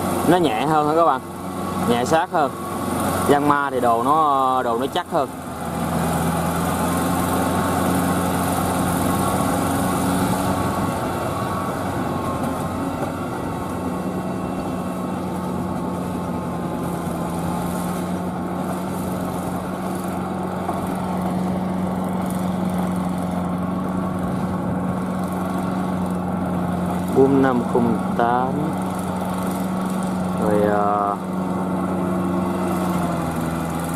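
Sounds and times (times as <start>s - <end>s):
tractor diesel engine running: 0.0s - 33.9s.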